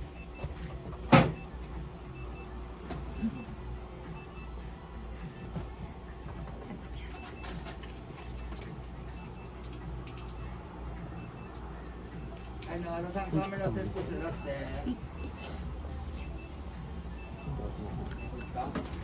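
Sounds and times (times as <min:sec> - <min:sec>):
low machine hum: 0:00.0 - 0:19.0
short electronic beeps: 0:11.2 - 0:11.6, 0:14.1 - 0:16.6, 0:17.2 - 0:18.7.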